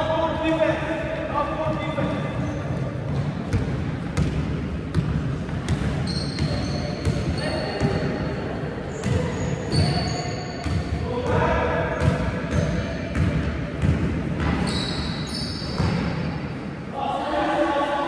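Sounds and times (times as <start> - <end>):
basketballs bouncing on wooden floor: 2.0 - 8.1, 10.6 - 14.8, 15.6 - 16.1.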